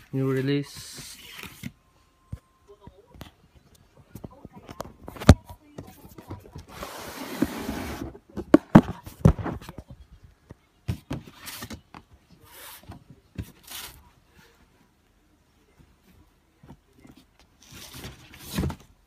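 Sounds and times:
cardboard lid scraping slide: 6.7 - 8.2.

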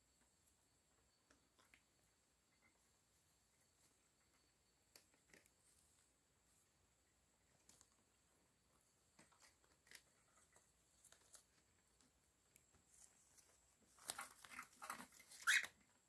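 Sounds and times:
bird scrabbling and rustling: 12.7 - 15.9
bird squeak: 15.3 - 15.8.

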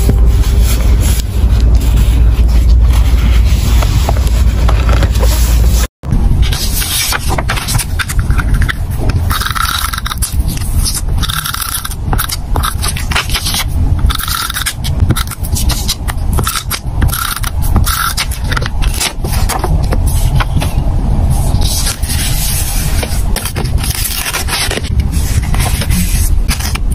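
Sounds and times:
glue tape roller scraping paper: 6.8 - 20.5, 21.6 - 26.9.

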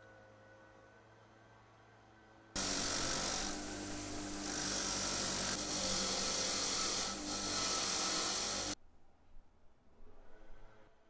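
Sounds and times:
grinder motor hum: 2.6 - 8.8.

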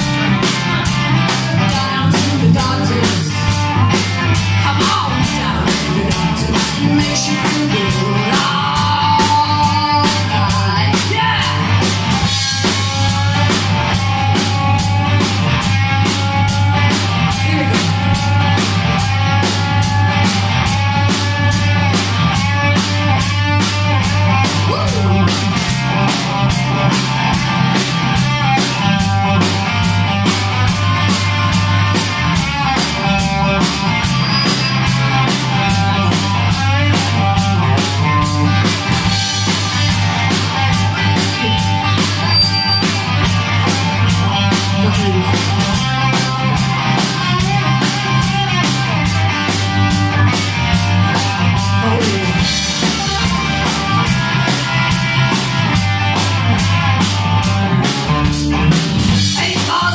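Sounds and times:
drum kit beat: 0.0 - 59.9
electric guitars: 0.0 - 59.9
woman singing: 1.5 - 3.6, 4.6 - 11.7, 59.3 - 59.9.

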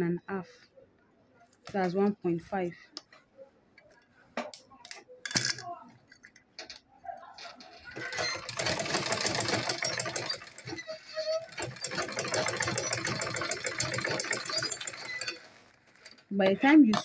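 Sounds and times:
sewing machine running: 8.0 - 15.6.

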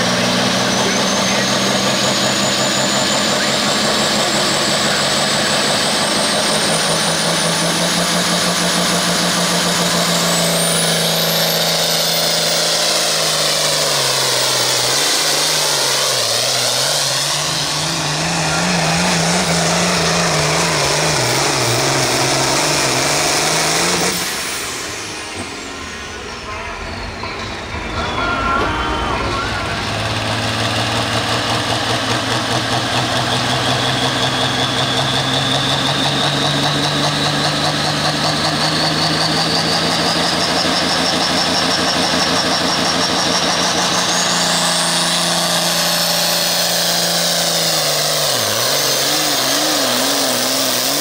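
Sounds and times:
tractor diesel engine under load: 0.0 - 51.0
faint high whine: 25.1 - 30.6.

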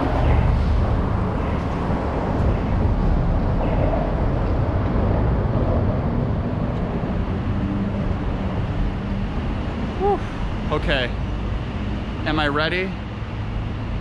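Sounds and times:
city street traffic rumble: 0.0 - 14.0
faint engine hum: 0.0 - 14.0.

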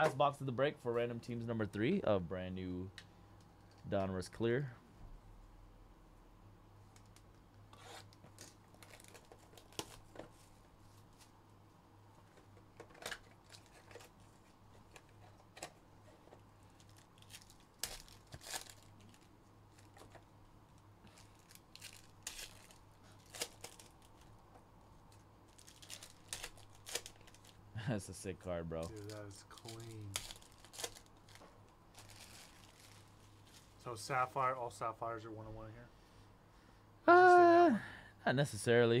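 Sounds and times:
faint low hum: 0.0 - 39.0
packaging crinkling and tearing: 7.9 - 10.2, 12.9 - 14.2, 16.6 - 20.2, 21.0 - 24.4, 25.1 - 27.6, 28.8 - 33.8.

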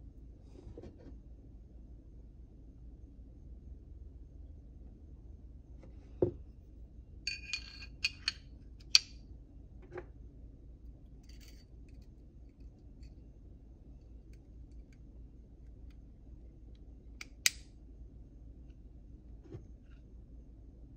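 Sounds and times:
pistol parts clicking and clinking: 7.3 - 9.1.

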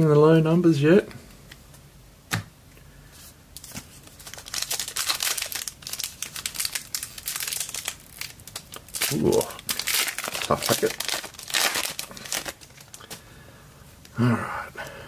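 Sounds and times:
wrapper crinkling and tearing: 3.6 - 13.2.

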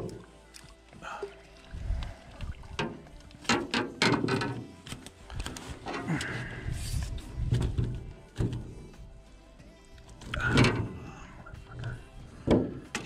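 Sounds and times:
net and gear knocking on boat hull: 12.4 - 13.0.

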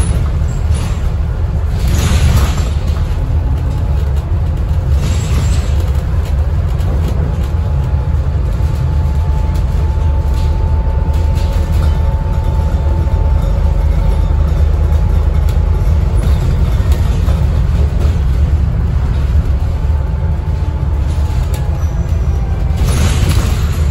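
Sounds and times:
bus engine and road rumble: 0.0 - 23.9.

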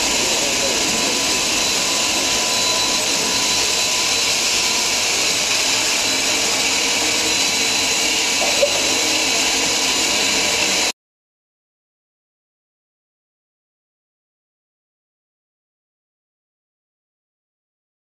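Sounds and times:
steam locomotive hissing: 0.0 - 10.9.

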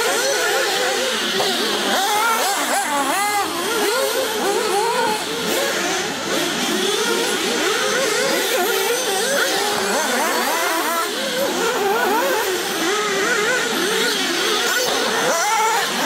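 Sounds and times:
model car engines buzzing and revving: 0.0 - 16.0.

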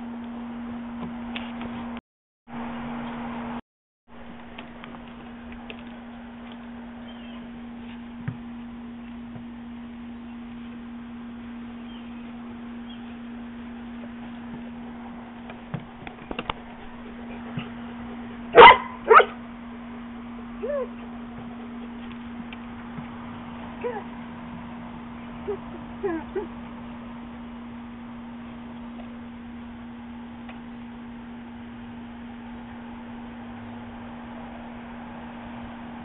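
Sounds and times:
steady low hum: 0.0 - 36.0
dog barking: 18.5 - 19.4.

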